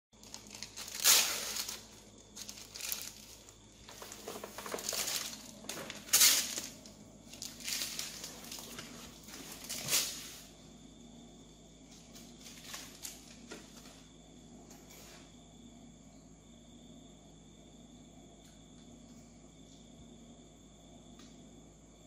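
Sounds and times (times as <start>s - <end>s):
plastic wrapper crinkling: 0.2s - 10.2s.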